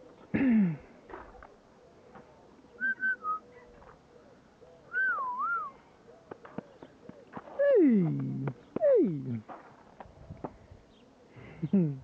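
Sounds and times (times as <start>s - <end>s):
person whistling: 2.8s - 3.4s, 4.9s - 5.8s.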